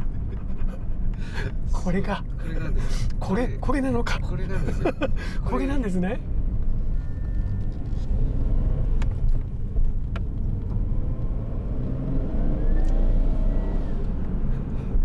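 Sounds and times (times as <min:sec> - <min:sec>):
car engine accelerating hard: 0:06.5 - 0:15.0.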